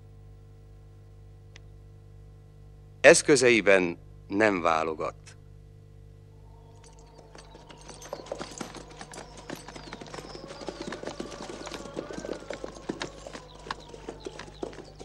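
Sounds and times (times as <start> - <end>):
steady low hum: 0.0 - 15.0
horses' hoofbeats on hard ground: 6.5 - 15.0.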